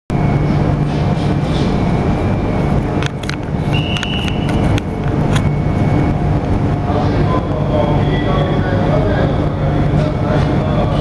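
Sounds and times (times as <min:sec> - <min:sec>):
train rumbling: 0:00.1 - 0:11.0
high squeal: 0:03.6 - 0:04.8.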